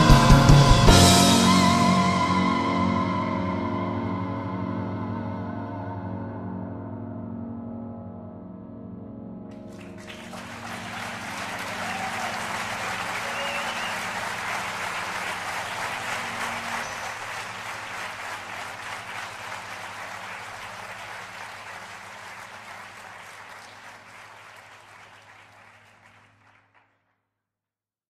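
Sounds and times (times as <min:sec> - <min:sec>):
audience applauding: 0:09.7 - 0:27.0.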